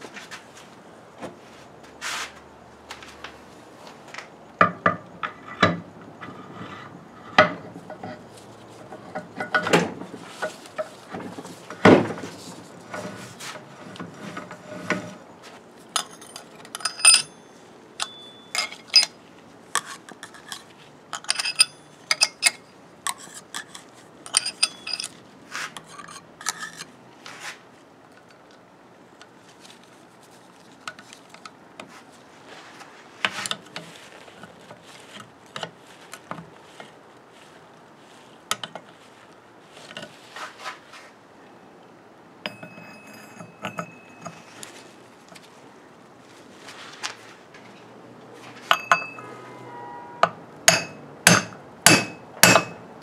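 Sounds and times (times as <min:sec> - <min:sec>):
metal gears clinking and knocking: 0:16.0 - 0:17.3, 0:24.3 - 0:25.2.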